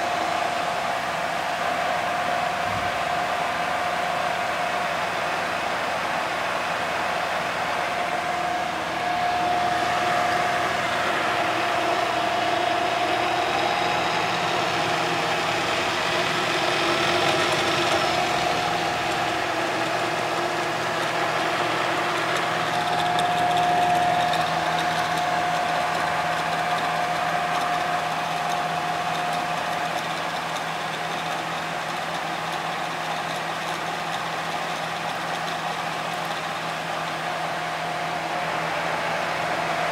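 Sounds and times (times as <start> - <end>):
high gear whine: 6.4 - 39.9
drill motor hum: 7.9 - 38.4.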